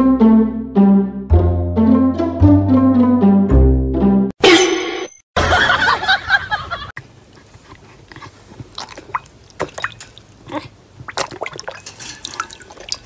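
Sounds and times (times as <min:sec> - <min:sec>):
dog lapping water: 0:08.0 - 0:13.0
water dripping: 0:08.7 - 0:13.0.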